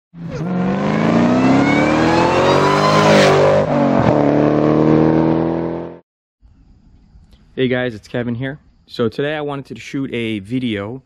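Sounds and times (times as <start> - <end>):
car engine accelerating: 0.2 - 6.0.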